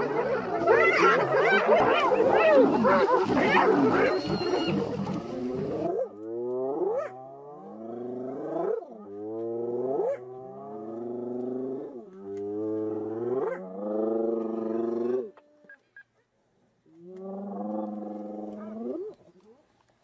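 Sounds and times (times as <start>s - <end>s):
animal low moaning calls: 0.0s - 8.3s.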